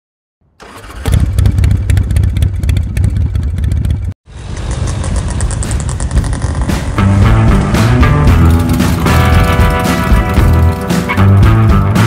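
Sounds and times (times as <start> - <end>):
motorcycle engine revving: 0.6 - 12.0
music: 6.6 - 12.0.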